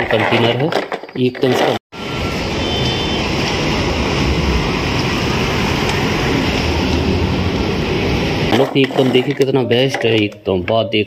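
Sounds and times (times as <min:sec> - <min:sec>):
truck driving past: 0:02.0 - 0:08.5.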